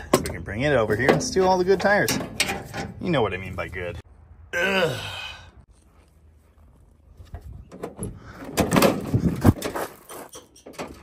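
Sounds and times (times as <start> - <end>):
metal door rattling open: 1.0 - 3.0, 7.7 - 11.0.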